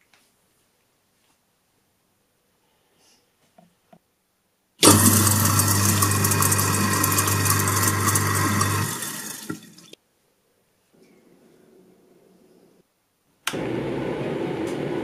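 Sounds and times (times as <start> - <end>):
tap water rushing into sink: 4.8 - 10.0.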